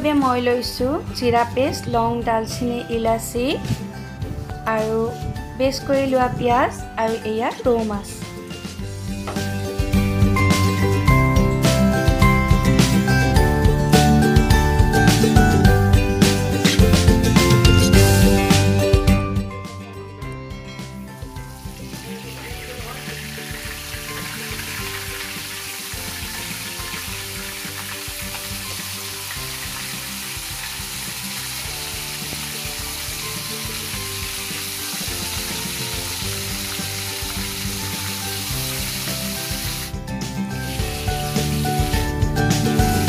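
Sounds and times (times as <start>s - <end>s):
fish frying in hot oil: 21.4s - 40.0s, 40.6s - 42.1s.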